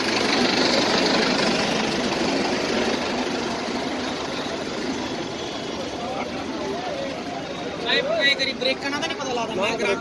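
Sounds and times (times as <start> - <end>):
tractor diesel engine idling: 0.0 - 7.9.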